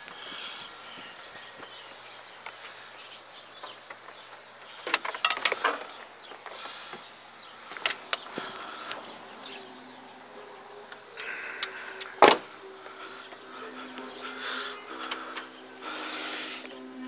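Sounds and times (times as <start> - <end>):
faint steady hiss: 0.0 - 17.0
camera and wires handled: 4.8 - 6.6, 7.7 - 9.1.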